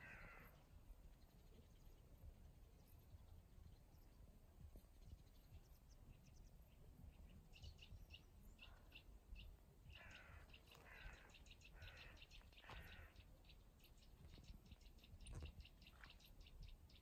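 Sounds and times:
crow cawing: 0.0s - 0.6s, 9.9s - 13.2s
small birds chirping: 0.0s - 17.0s.

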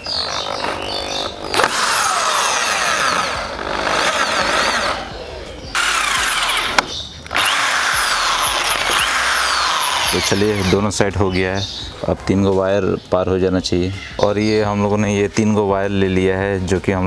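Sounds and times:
electric drill boring through steel: 0.0s - 10.8s.

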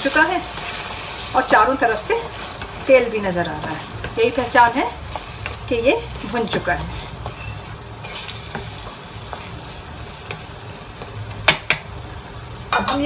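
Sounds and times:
food sizzling in a pan: 0.0s - 13.0s
spatula scraping a pan: 3.6s - 11.2s
spatula knocking on pan: 11.4s - 11.9s.

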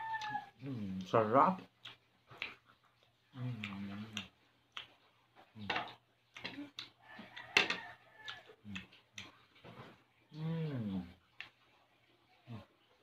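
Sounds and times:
chewing and lip-smacking: 0.1s - 7.6s, 8.2s - 9.8s, 11.2s - 13.0s
person humming: 3.4s - 4.3s, 10.3s - 11.2s.

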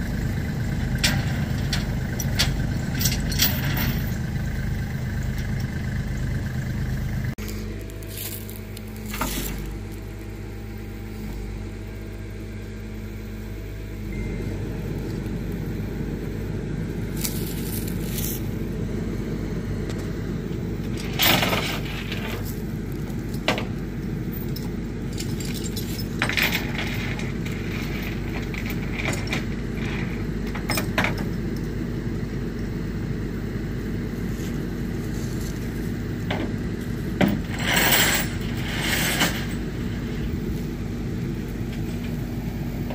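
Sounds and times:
metallic clanks and rattles: 0.0s - 7.4s, 20.8s - 31.7s, 35.5s - 40.4s
truck engine idling: 0.0s - 42.9s.

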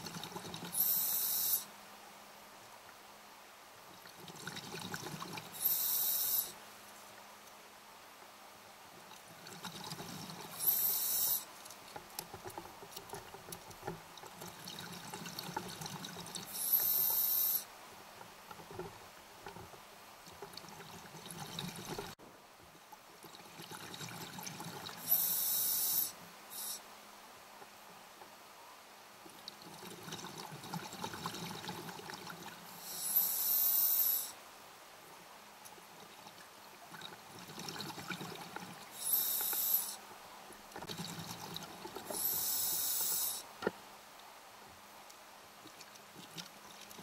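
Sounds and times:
regulator inhalation hisses: 0.8s - 1.7s, 5.6s - 6.6s, 10.6s - 11.5s, 16.5s - 17.7s, 25.0s - 26.8s, 32.8s - 34.4s, 39.0s - 40.0s, 42.2s - 43.5s
exhaled air bubbling: 4.0s - 6.5s, 29.5s - 34.3s, 36.0s - 40.0s.

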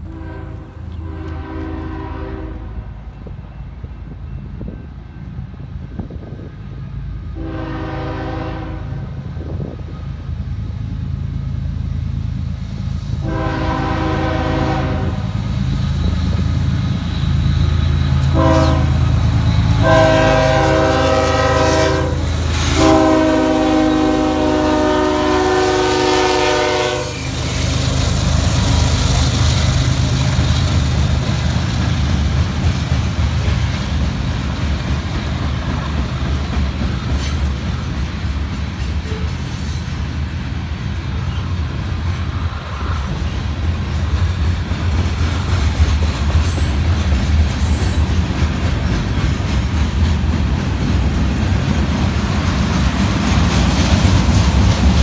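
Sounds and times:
locomotive air horn blasts: 0.0s - 3.0s, 7.3s - 9.6s, 13.2s - 15.4s, 18.2s - 19.1s, 19.7s - 27.7s.

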